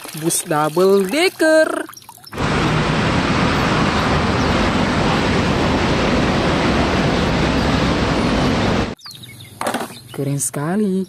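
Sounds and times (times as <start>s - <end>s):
bus engine running: 2.4s - 9.0s
road and traffic noise: 2.4s - 9.0s.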